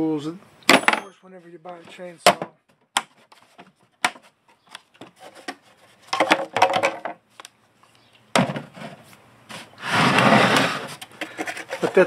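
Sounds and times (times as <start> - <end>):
plastic clattering: 5.0 - 7.2, 10.1 - 12.0.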